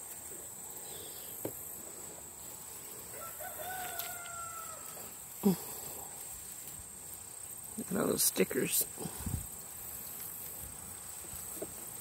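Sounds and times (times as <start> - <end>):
insect chirring: 0.0 - 12.0
faint rooster crowing: 3.0 - 5.2.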